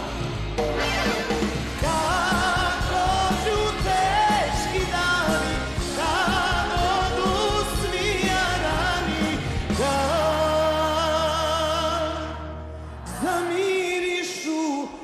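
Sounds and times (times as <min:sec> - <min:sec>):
drums beating: 0:00.0 - 0:11.0
live folk-pop band: 0:00.0 - 0:15.0.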